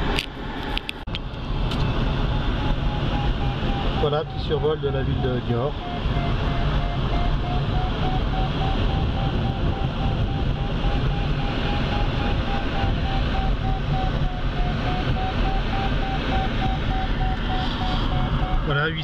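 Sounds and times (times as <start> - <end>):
electronic variometer tone: 1.8 - 19.0
airflow rush: 15.9 - 19.0.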